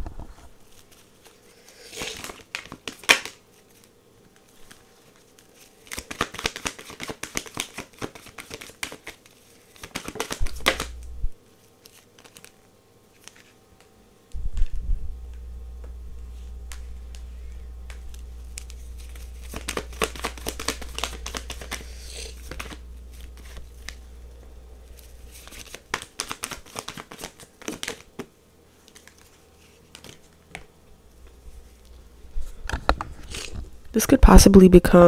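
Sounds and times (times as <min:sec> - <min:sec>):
cards shuffling: 0:00.7 - 0:13.9, 0:16.3 - 0:24.2, 0:24.8 - 0:33.6
low steady hum: 0:09.2 - 0:35.0.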